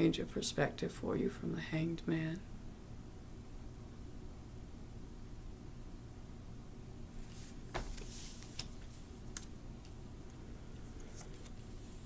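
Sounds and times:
faint room hum: 0:00.0 - 0:12.0
papery card slide: 0:07.2 - 0:09.5, 0:10.8 - 0:12.0
cards clicking: 0:07.8 - 0:10.0.

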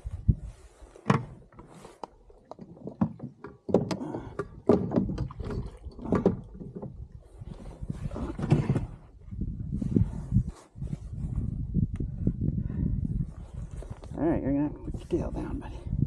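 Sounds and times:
fishing gear knocking in a boat: 0:02.5 - 0:07.0.

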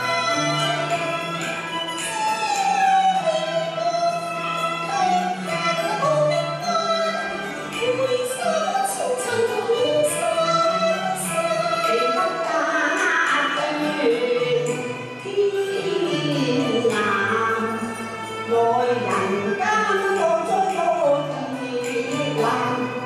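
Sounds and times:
instrumental accompaniment: 0:00.0 - 0:23.0
women singing operatic song: 0:04.9 - 0:23.0.

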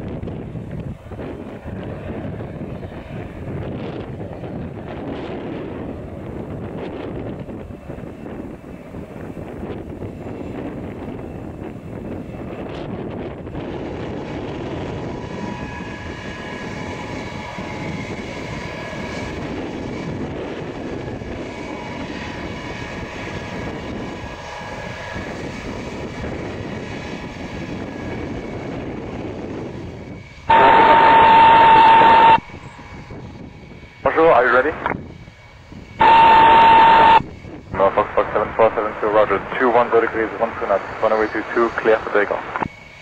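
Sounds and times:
jet engines rumbling and whining: 0:00.0 - 0:43.0
radio noise with high tone: 0:30.5 - 0:32.7, 0:34.1 - 0:35.0, 0:36.0 - 0:42.7.

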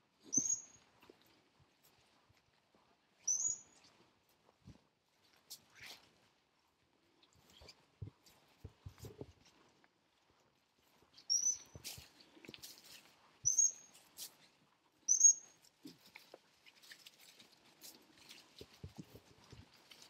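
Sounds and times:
faint footsteps: 0:00.0 - 0:20.0
rustling: 0:15.6 - 0:20.0.

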